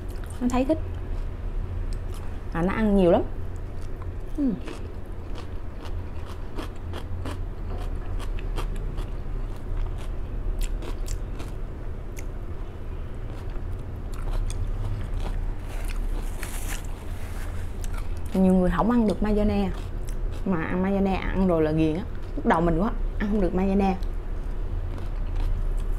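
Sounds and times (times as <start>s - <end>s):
chewing crunchy salad: 0.0s - 2.4s, 3.5s - 20.7s, 22.1s - 22.4s, 24.0s - 25.9s
low steady hum: 0.0s - 25.9s.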